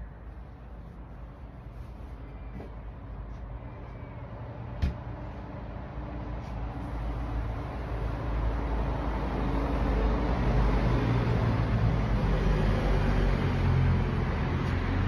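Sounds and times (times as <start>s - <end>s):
low rumble with droning hum: 0.0s - 10.0s.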